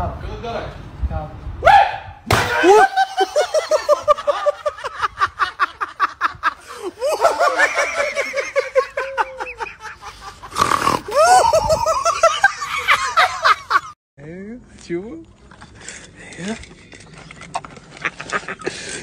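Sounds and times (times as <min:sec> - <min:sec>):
high-pitched laughter: 0:02.7 - 0:13.9.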